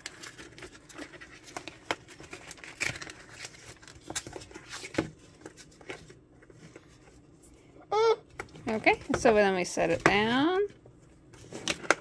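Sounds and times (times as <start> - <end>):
cardboard packaging tearing: 0.0 - 5.0.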